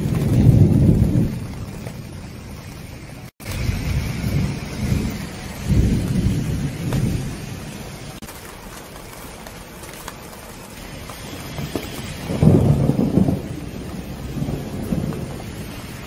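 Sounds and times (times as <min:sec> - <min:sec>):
rain pattering on plastic: 0:00.0 - 0:16.0
thunder rumbling: 0:00.0 - 0:16.0.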